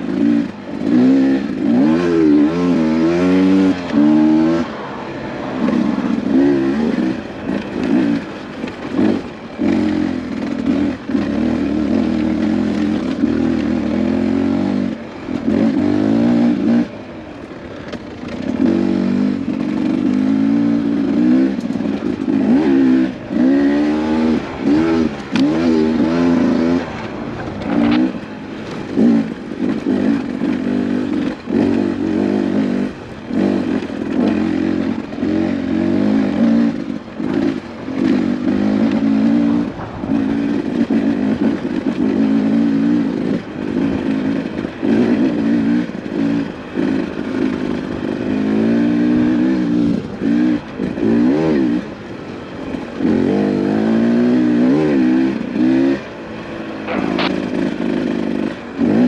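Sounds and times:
dirt bike engine revving: 0.0 - 59.0.

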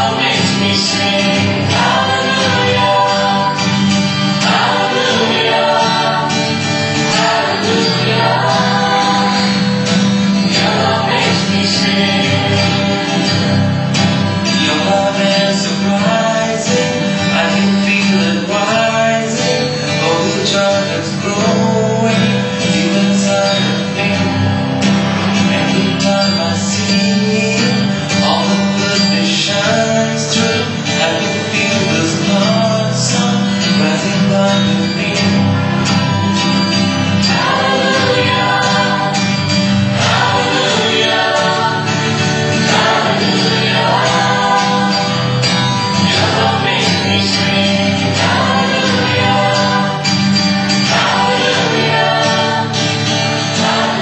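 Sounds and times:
mixed choir singing: 0.0 - 17.0, 35.6 - 54.0.

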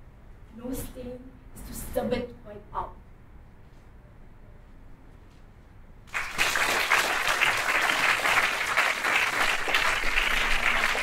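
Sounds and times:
audience applauding: 6.1 - 11.0.

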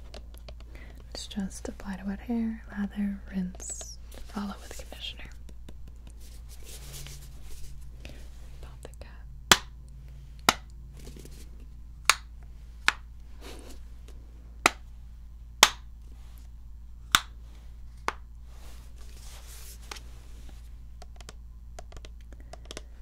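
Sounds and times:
soft rubbing: 3.4 - 8.8, 17.4 - 20.9.

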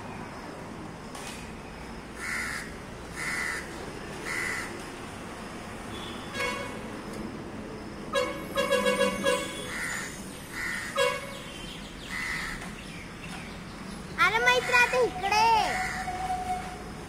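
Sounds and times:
steady outdoor hiss: 0.0 - 17.0
crow cawing: 2.2 - 4.8, 9.6 - 11.0, 12.1 - 12.7, 14.5 - 16.2.

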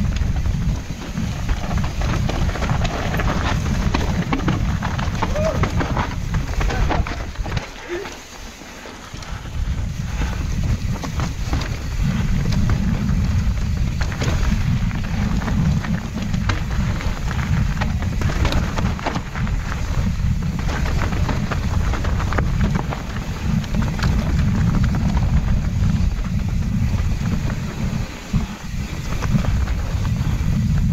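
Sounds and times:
wind buffeting microphone: 0.0 - 8.1, 9.0 - 30.9
bike clattering: 0.0 - 30.9
tyres crunching on dirt: 0.0 - 30.9.

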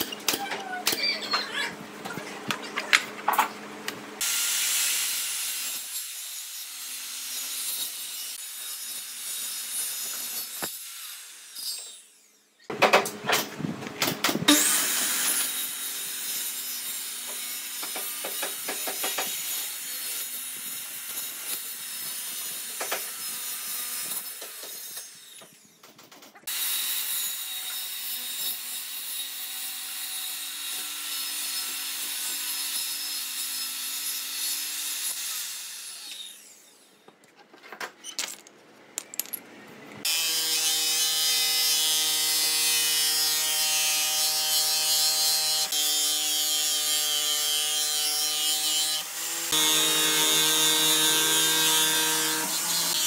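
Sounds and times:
sawing wood: 40.0 - 53.0.

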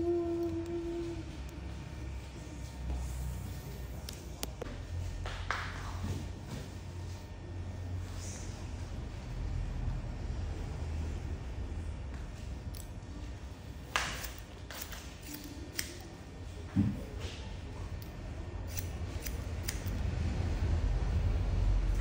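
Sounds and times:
steady low rumble: 0.0 - 13.9, 17.5 - 22.0
scissors snipping hair: 13.9 - 16.1, 18.0 - 20.0.

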